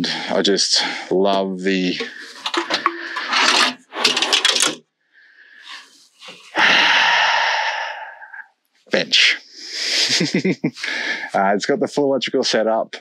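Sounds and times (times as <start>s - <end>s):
bench sliding on runners: 2.0s - 4.8s.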